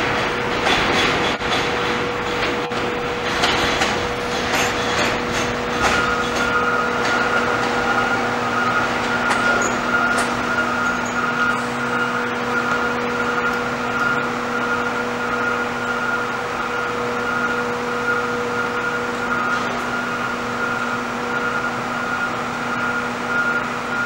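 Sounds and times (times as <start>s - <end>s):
steady train whine: 0.0s - 24.0s
subway train wheels clicking over rail joints: 0.0s - 24.0s.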